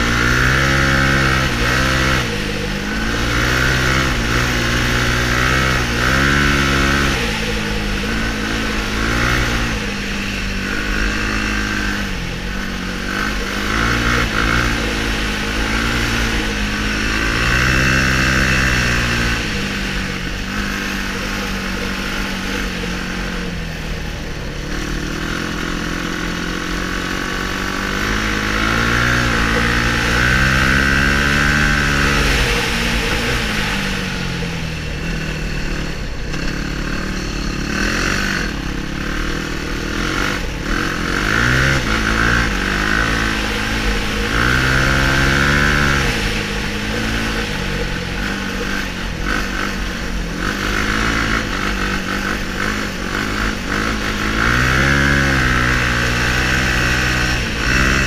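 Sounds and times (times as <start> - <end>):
quad engine revving: 0.0 - 58.0.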